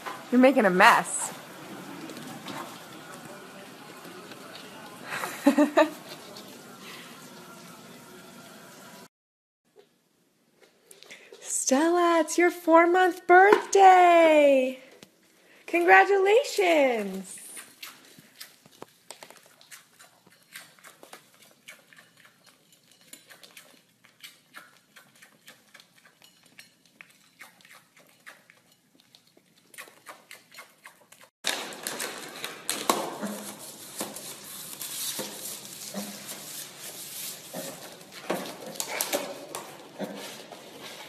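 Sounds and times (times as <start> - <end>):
piglet crunching food on plate: 17.5 - 41.0
plastic bag rustling on floor: 31.5 - 41.0.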